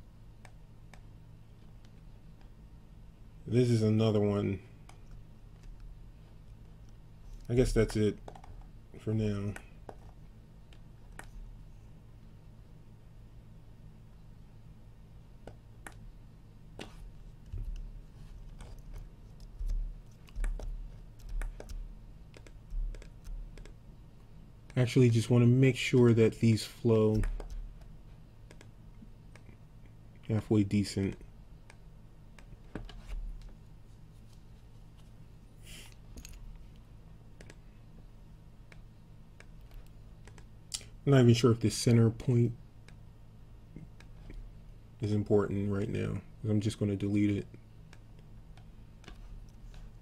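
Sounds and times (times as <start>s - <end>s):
low steady hum: 0.0s - 50.0s
mouse and keyboard clicks: 18.6s - 23.8s, 28.5s - 28.7s.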